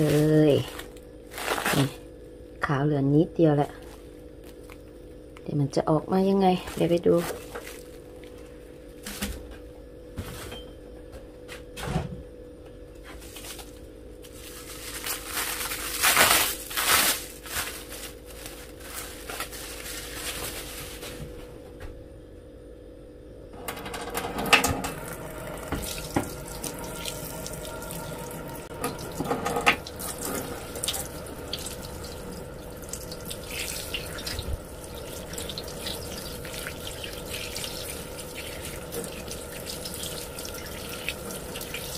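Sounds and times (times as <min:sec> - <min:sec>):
plastic wrap crackling: 0:00.0 - 0:02.0, 0:13.3 - 0:21.3
tap water running into a sink: 0:23.7 - 0:41.9.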